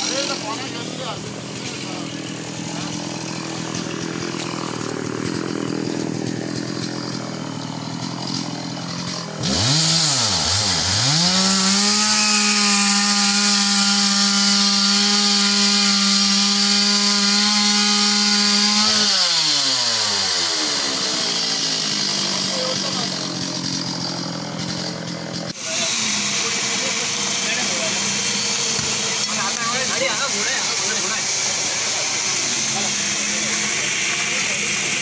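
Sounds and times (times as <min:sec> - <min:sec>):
chainsaw idling and revving: 0:00.0 - 0:35.0.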